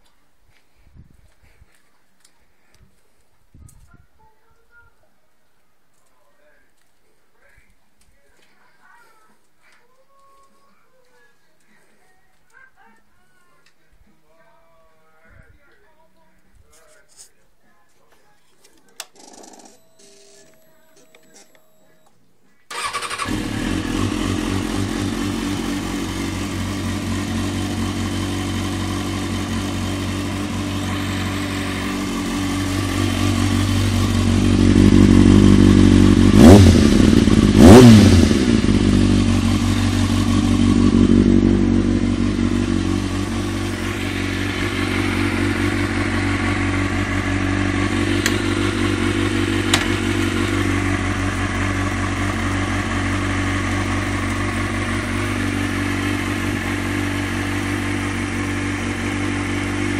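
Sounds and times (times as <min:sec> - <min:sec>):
motorcycle engine idling and revving: 0:22.7 - 0:59.9.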